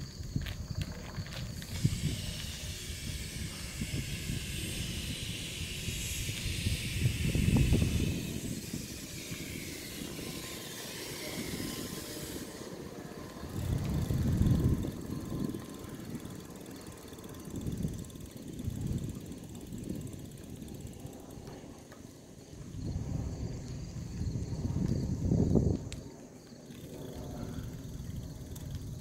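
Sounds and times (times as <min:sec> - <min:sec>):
wind buffeting microphone: 0:00.0 - 0:29.0
steady high hiss: 0:01.6 - 0:13.3.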